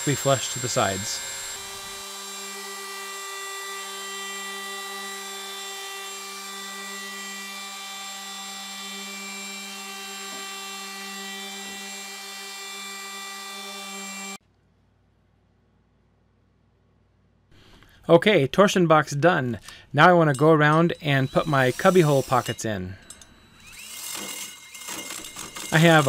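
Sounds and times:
router whining: 0.0 - 14.4, 20.7 - 26.0.

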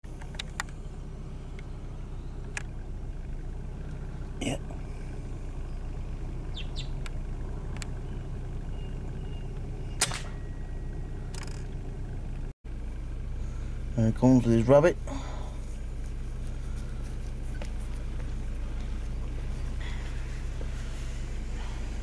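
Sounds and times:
steady low hum: 0.1 - 22.0
air rifle shot crack: 10.0 - 10.4.

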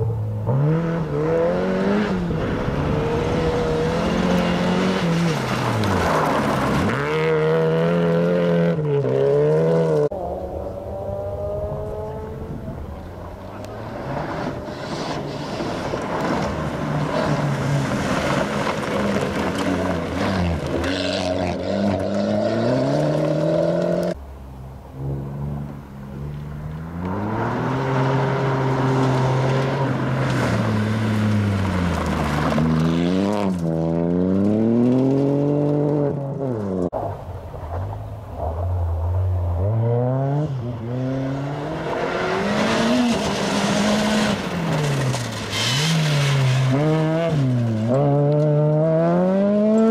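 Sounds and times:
rally car engine accelerating: 0.0 - 24.2, 24.8 - 36.9, 38.5 - 49.9
rally car engine through gears: 0.4 - 24.2, 25.0 - 37.0, 39.6 - 49.9
tyres on loose gravel: 2.2 - 10.1, 12.6 - 24.2, 26.1 - 39.3, 42.2 - 48.8.

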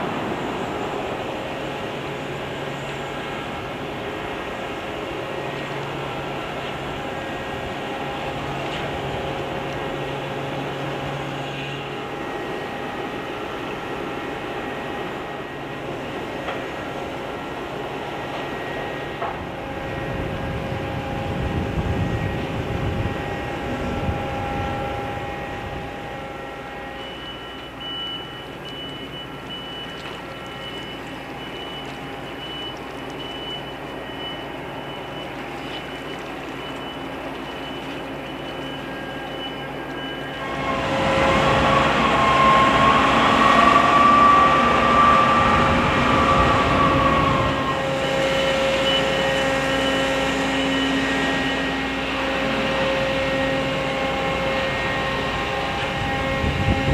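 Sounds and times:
ferry engines humming: 0.0 - 56.9
high steady whine: 0.0 - 56.9
wind rumbling on microphone: 19.2 - 26.8, 40.4 - 48.9, 52.1 - 56.9.

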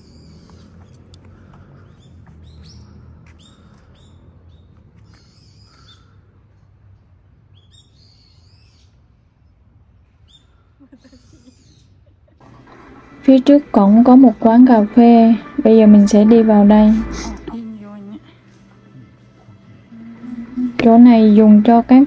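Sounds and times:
small birds chirping: 0.0 - 6.2, 7.5 - 12.0
steady low rumble: 12.9 - 18.5.

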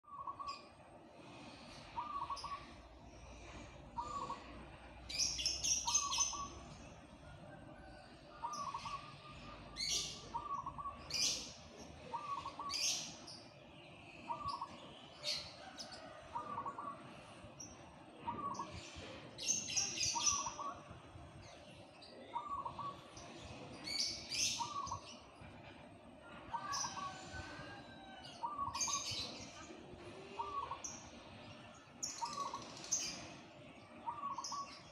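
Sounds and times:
small birds chirping: 0.0 - 34.9
dove cooing low call: 1.4 - 13.0, 14.3 - 17.5, 18.2 - 20.9, 22.3 - 25.0, 26.3 - 31.4, 34.0 - 34.8.

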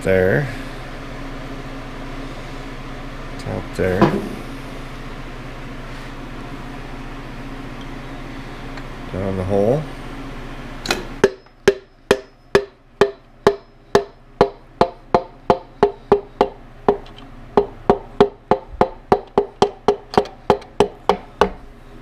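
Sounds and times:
sharp metallic knocks: 11.2 - 21.6.

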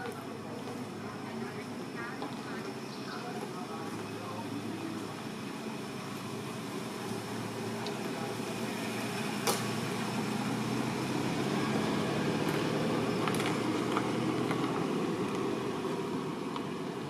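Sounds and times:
low outdoor background rumble: 0.0 - 17.0.

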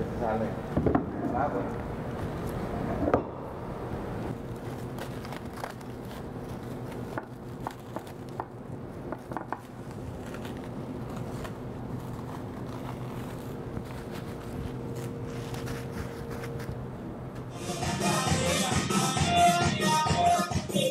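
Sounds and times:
steady low hum: 0.0 - 20.7
plastic wrap crinkling: 4.3 - 16.9.

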